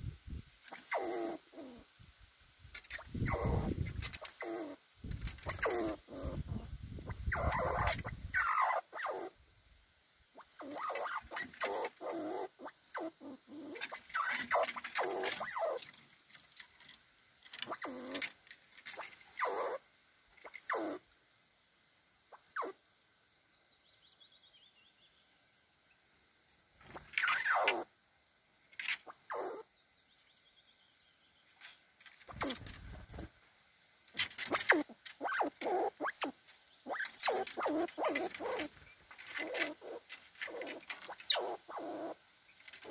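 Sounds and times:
squirrels chattering: 0.7s - 1.8s, 2.9s - 9.3s, 10.4s - 15.8s, 17.6s - 18.3s, 19.0s - 19.8s, 20.4s - 21.0s, 22.4s - 22.8s, 27.0s - 27.8s, 29.1s - 29.6s, 34.4s - 42.2s
thin high squeak: 2.8s - 4.6s, 10.4s - 13.1s, 13.7s - 15.8s, 18.8s - 19.8s, 27.0s - 27.8s, 34.3s - 36.3s, 36.9s - 42.1s.

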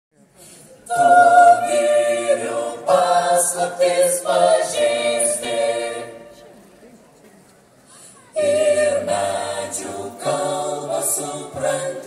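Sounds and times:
mixed choir singing in harmony: 0.8s - 6.5s, 8.4s - 12.0s.

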